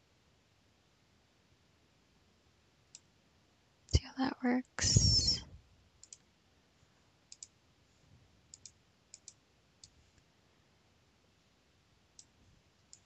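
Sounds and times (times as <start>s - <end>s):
computer mouse clicking: 6.0s - 6.2s, 7.3s - 7.5s, 8.5s - 10.0s, 12.2s - 13.0s.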